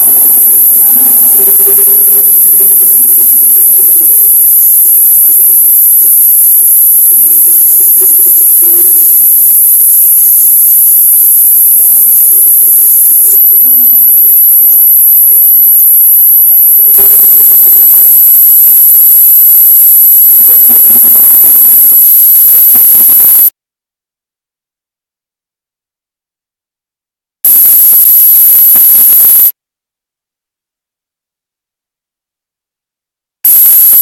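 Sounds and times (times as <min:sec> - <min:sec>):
high-pitched electronic hiss: 0:00.0 - 0:23.5, 0:27.5 - 0:29.5.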